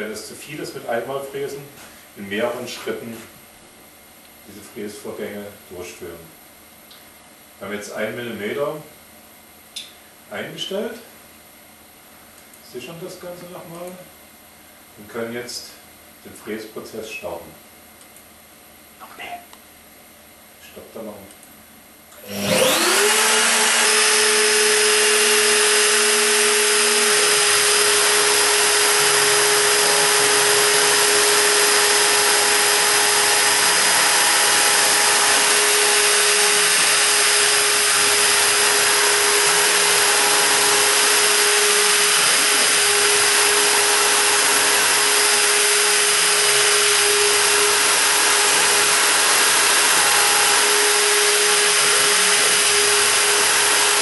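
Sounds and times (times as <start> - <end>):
router spindle whine: 22.2 - 54.0
bit milling into wood: 22.3 - 54.0.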